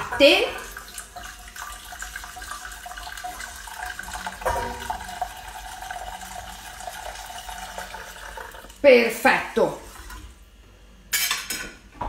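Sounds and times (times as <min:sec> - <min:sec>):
milk pouring into saucepan: 0:00.6 - 0:08.8.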